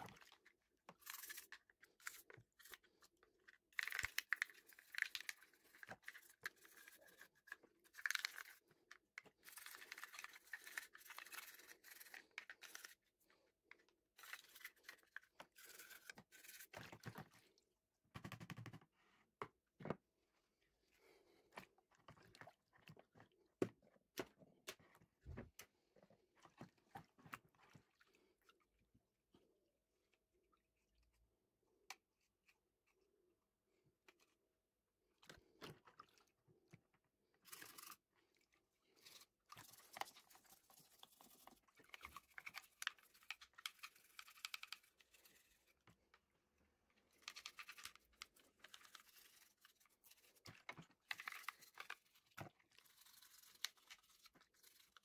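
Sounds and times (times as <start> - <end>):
plastic parts clicking in water: 0.0 - 13.1, 39.0 - 46.2, 47.0 - 55.0
toothbrush scrubbing plastic: 0.1 - 17.2, 37.4 - 38.2, 38.9 - 46.1, 47.0 - 55.0.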